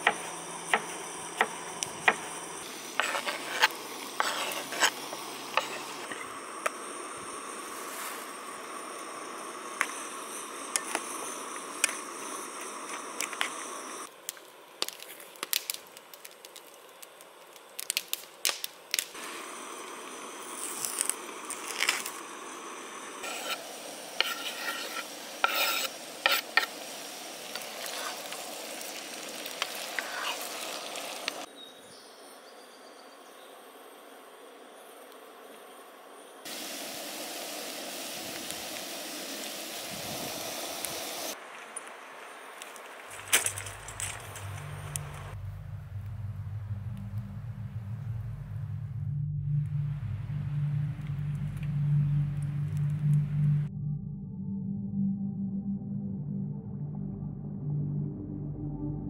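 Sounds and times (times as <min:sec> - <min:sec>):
food sizzling in pan: 0:19.1 - 0:31.5, 0:36.4 - 0:41.4.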